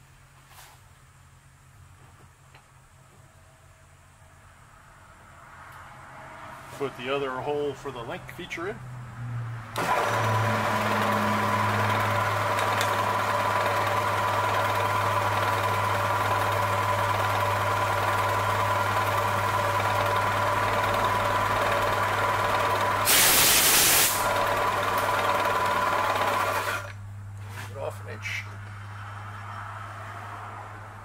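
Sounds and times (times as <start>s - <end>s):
milling machine spindle humming: 9.8s - 23.0s
loud hiss: 23.0s - 24.3s.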